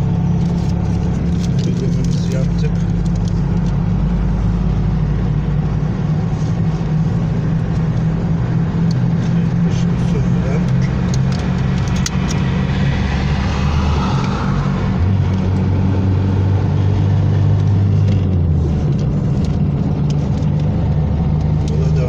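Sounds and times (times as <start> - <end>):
car engine and road drone: 0.0 - 22.0
sharp clicks: 10.6 - 12.4.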